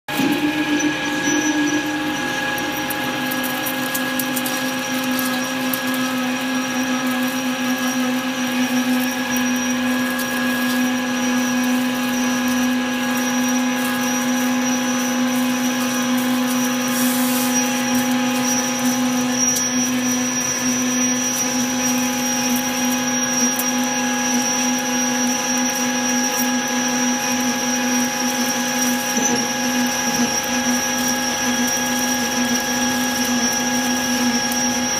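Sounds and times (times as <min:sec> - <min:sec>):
lathe whining: 0:00.1 - 0:34.9
hiss of metal cutting: 0:14.0 - 0:21.2.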